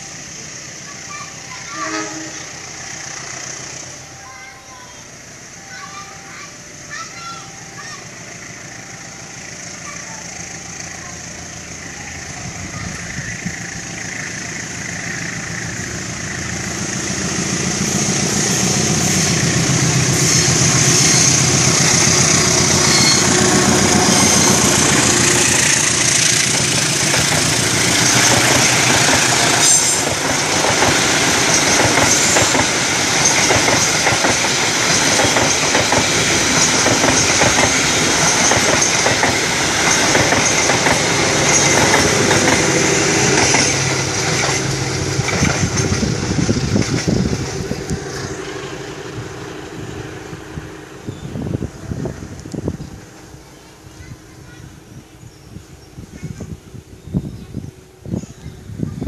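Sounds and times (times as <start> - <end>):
diesel locomotive engine: 0.0 - 59.0
train wheels clattering over rail joints: 12.7 - 48.6.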